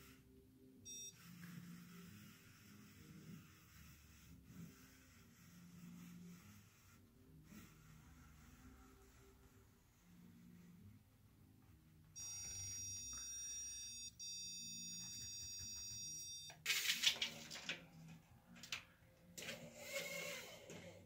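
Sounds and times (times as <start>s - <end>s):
stud finder beeping: 0.9s - 1.4s, 12.2s - 16.6s.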